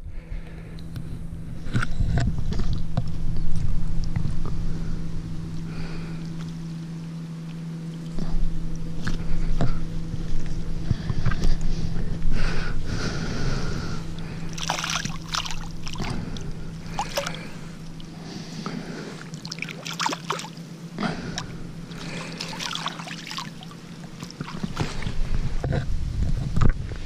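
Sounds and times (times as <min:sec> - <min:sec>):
water splashing and dripping: 0:14.5 - 0:18.2, 0:19.2 - 0:20.6, 0:21.9 - 0:25.0.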